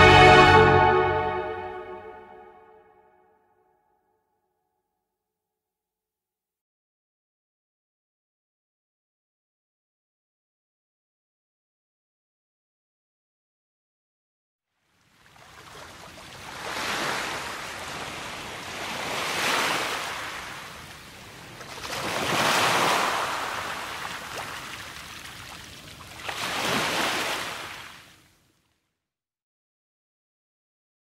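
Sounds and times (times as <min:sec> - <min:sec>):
sea waves breaking on beach: 0:15.2 - 0:28.2.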